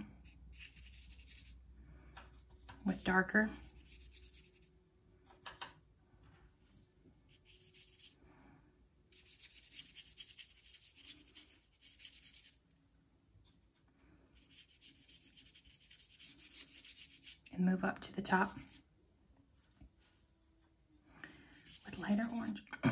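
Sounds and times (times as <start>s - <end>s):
paintbrush rubbing across paper: 0.2s - 1.6s, 2.8s - 4.7s, 6.8s - 8.2s, 9.1s - 12.6s, 14.4s - 17.5s, 18.3s - 18.9s, 21.5s - 22.6s.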